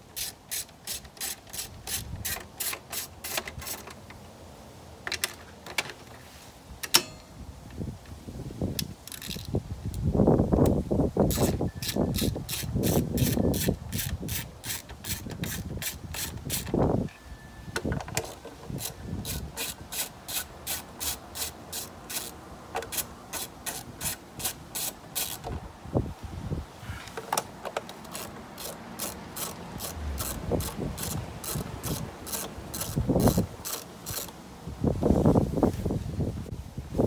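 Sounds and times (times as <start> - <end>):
ratchet wrench clicking: 11.3 - 16.7, 18.8 - 25.5, 28.0 - 34.3.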